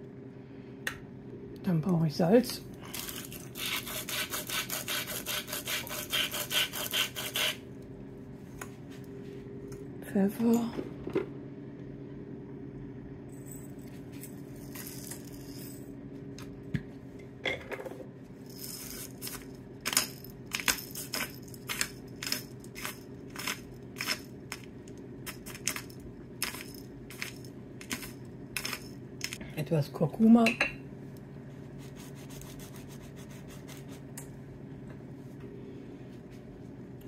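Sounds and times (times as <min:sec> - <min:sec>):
steady low hum: 0:00.0 - 0:37.0
pepper mill grinding: 0:02.9 - 0:07.6, 0:18.5 - 0:29.4.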